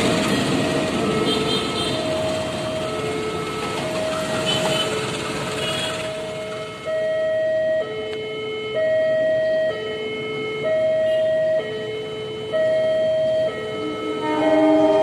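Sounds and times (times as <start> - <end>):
train rumble: 0.0 - 6.8, 13.8 - 15.0
level crossing two-tone alarm: 0.1 - 15.0.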